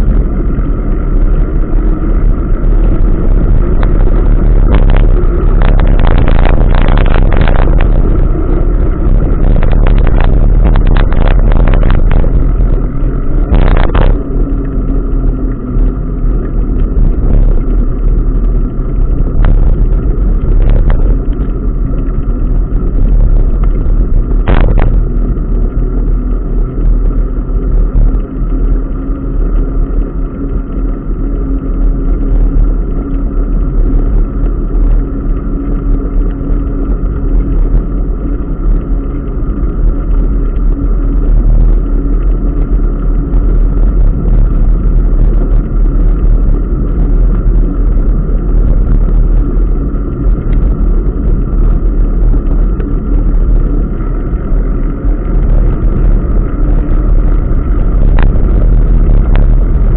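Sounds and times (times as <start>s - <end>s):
faint steady hum: 0.0s - 59.9s
wind buffeting microphone: 0.0s - 59.9s.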